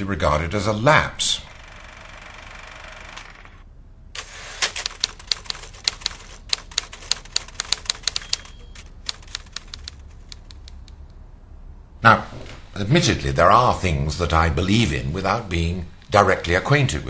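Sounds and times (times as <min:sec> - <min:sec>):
typewriter keys clacking: 0:04.6 - 0:10.9.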